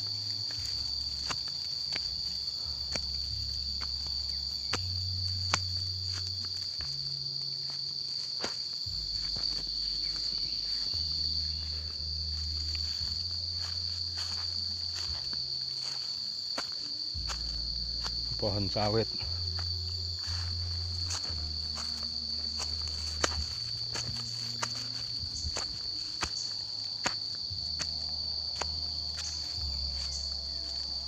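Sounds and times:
footsteps on stony path: 0:00.0 - 0:31.0
high-pitched insect drone: 0:00.0 - 0:31.0.

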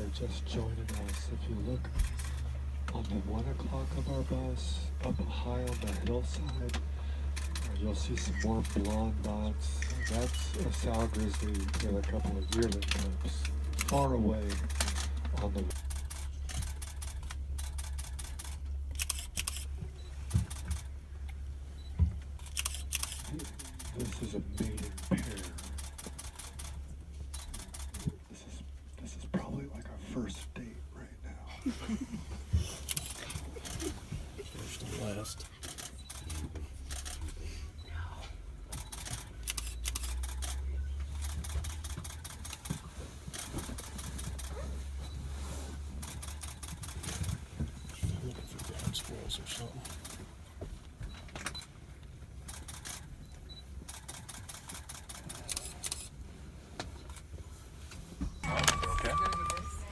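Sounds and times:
bus engine hum: 0:00.0 - 0:57.6, 0:58.4 - 0:59.9
camera shutter clicks: 0:09.8 - 0:19.8, 0:22.4 - 0:28.1, 0:32.8 - 0:33.9, 0:35.5 - 0:37.4, 0:38.7 - 0:42.7, 0:53.9 - 0:56.1.

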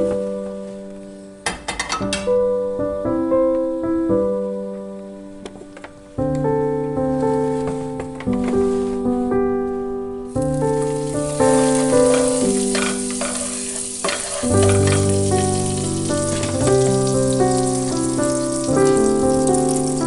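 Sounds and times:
background music: 0:00.0 - 0:20.0
butter sizzling in a frying pan: 0:10.4 - 0:20.0
spatula spreading in a pan: 0:10.8 - 0:19.6.

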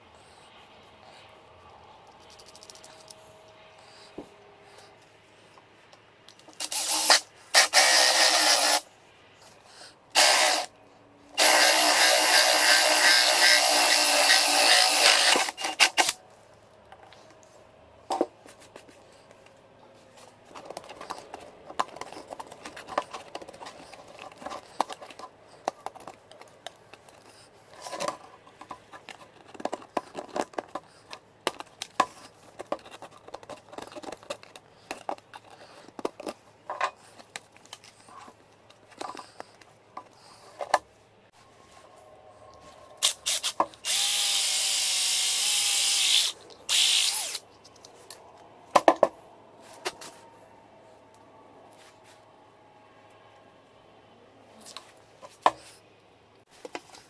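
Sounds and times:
drill cutting plastic: 0:06.6 - 0:08.8, 0:10.2 - 0:10.7, 0:11.4 - 0:16.2, 0:43.0 - 0:47.4
knife scratching plastic: 0:20.4 - 0:39.7.

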